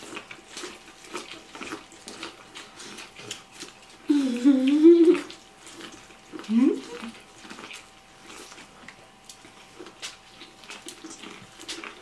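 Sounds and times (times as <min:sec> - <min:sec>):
crunching bites of corn: 0:00.0 - 0:04.1, 0:05.2 - 0:12.0
person humming mmm: 0:04.1 - 0:05.3.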